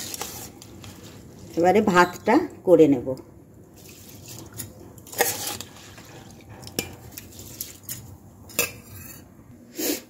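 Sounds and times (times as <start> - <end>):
spoon stirring rice in pot: 0.0 - 2.3, 3.8 - 9.3
boiling water: 0.0 - 9.0
metal clinking on pot: 6.6 - 7.2, 8.5 - 9.3.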